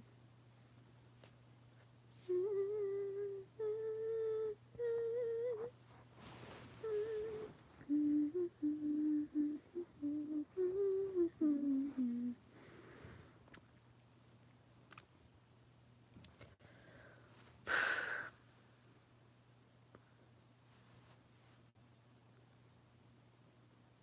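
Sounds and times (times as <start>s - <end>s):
girl humming a tune: 2.2s - 12.4s.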